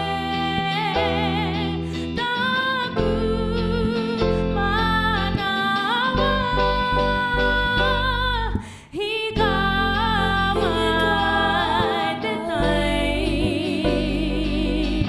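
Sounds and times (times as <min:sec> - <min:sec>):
woman singing with vibrato: 0:00.0 - 0:15.0
backing vocals: 0:08.4 - 0:15.0.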